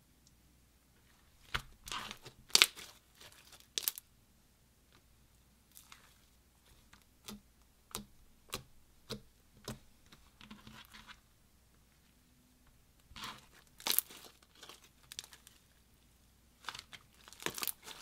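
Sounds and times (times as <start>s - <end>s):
slime crackling: 1.4s - 4.1s, 13.1s - 15.7s, 16.6s - 18.0s
slime popping: 16.8s - 18.0s.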